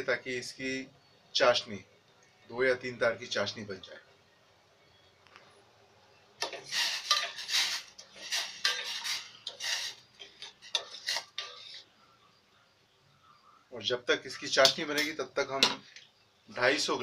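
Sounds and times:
spoon scraping and clinking in a pot: 6.4 - 11.9.

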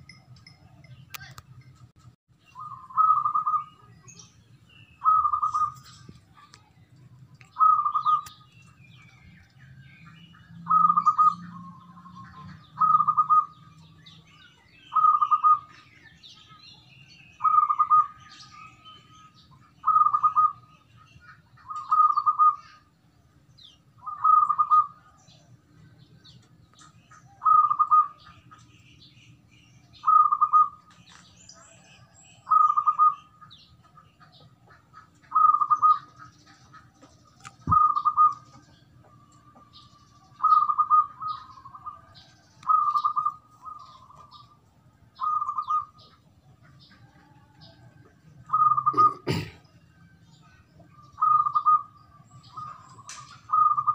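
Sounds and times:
dove cooing: 5.0 - 5.8, 10.6 - 13.7, 19.8 - 22.9, 24.0 - 25.2, 27.2 - 28.4, 32.0 - 44.6, 45.2 - 49.6, 50.9 - 53.9.

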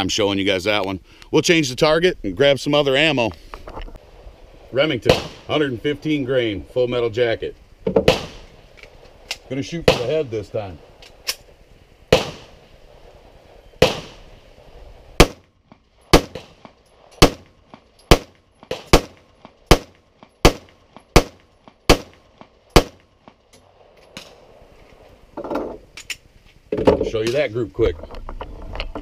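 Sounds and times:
pistol shots: 5.0 - 5.6, 8.0 - 8.6, 9.3 - 10.4, 12.1 - 12.7, 13.8 - 14.4, 15.2 - 15.5, 16.1 - 23.1.

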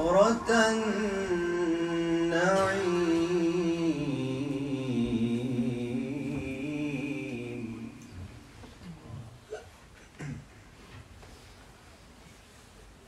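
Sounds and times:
man reciting melodically: 0.0 - 8.4.

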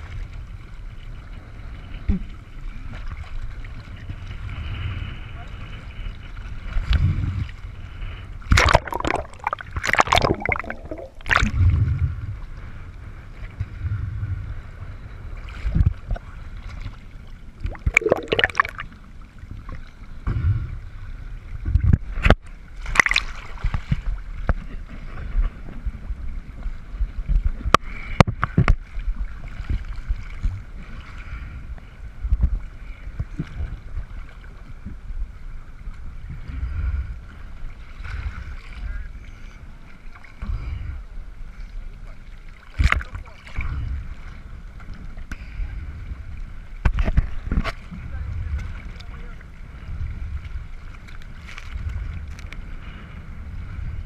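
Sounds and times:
low rumble of wind and water: 0.0 - 54.0
water splashing against camera housing: 8.5 - 11.6, 17.6 - 18.8.

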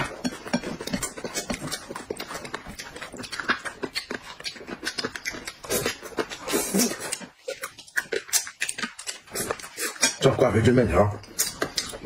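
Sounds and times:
wet chewing and lip smacking: 0.0 - 10.3, 11.2 - 12.0.

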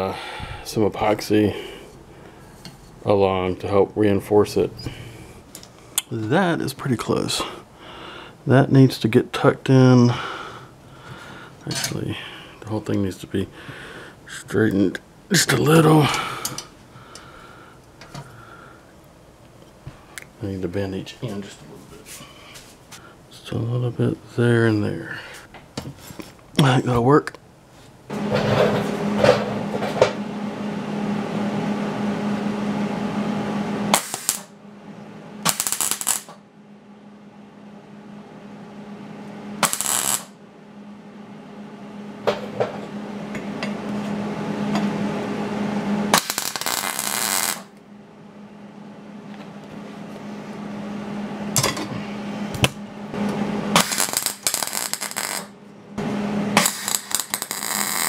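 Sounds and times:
low hum: 28.0 - 58.0
welding arc crackle: 33.9 - 34.5, 35.4 - 36.4, 39.6 - 40.4, 46.1 - 47.7, 53.7 - 55.6, 56.5 - 58.0.

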